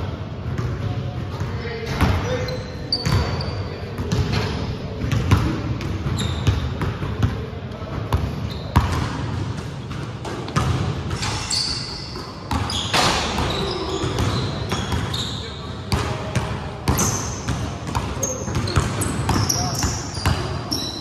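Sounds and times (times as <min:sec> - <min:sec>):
sneaker squeaks: 0:01.9 - 0:05.4, 0:06.0 - 0:06.8, 0:08.1 - 0:09.2, 0:10.5 - 0:15.8, 0:16.9 - 0:21.0.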